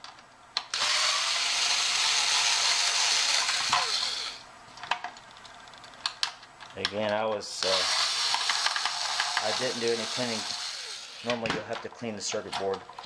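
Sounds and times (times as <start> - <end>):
power screwdriver running: 0.7 - 4.4, 7.6 - 11.3.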